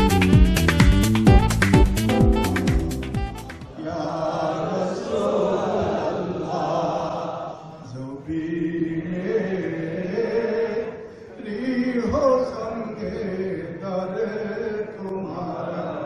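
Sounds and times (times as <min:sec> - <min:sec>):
men chanting together: 0:03.8 - 0:16.0.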